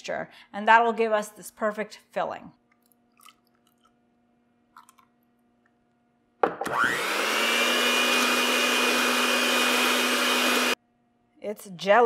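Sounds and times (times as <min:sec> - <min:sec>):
electric hand mixer whirring: 0:06.6 - 0:10.8.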